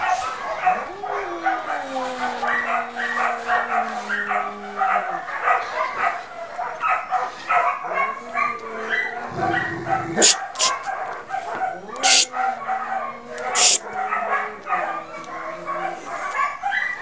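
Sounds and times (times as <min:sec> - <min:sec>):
dog whining: 0:00.6 - 0:05.3, 0:07.9 - 0:17.0
dog panting: 0:07.1 - 0:16.5.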